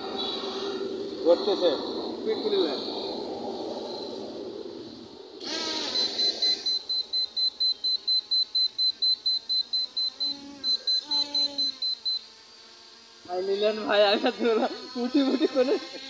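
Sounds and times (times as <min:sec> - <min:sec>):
short high electronic beeps: 0:05.5 - 0:12.2.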